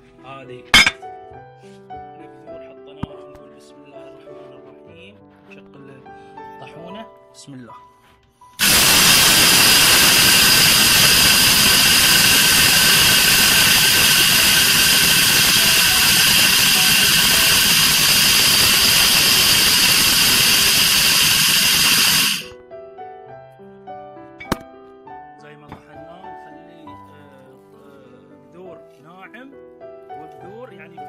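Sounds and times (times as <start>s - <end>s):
grain mill motor whining: 8.6s - 22.5s
grinding hiss: 8.6s - 22.5s.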